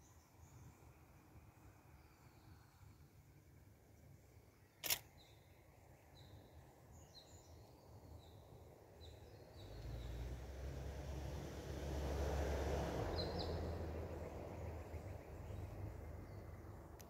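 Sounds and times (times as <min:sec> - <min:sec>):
camera shutter click: 0:04.8 - 0:05.1.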